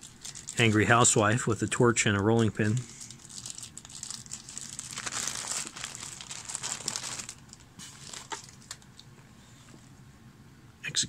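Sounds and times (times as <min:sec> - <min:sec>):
plastic bags crinkling: 0:00.0 - 0:01.9, 0:02.6 - 0:09.0.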